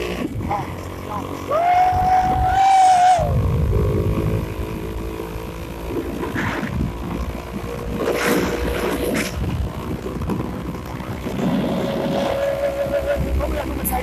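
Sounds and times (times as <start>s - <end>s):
motorcycle engine rumble: 0.0s - 14.0s
rider whooping: 1.4s - 4.0s, 12.0s - 13.8s
wind rushing over microphone: 1.7s - 14.0s.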